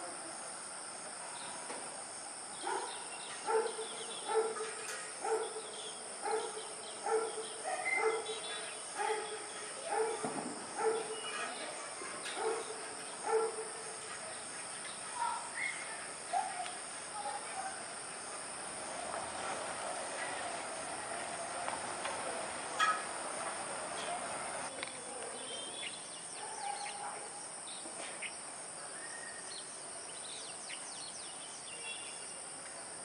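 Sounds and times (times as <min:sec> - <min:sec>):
high-pitched insect hiss: 0:00.0 - 0:33.0
dog barking: 0:02.6 - 0:08.4, 0:09.0 - 0:14.0, 0:26.4 - 0:27.4.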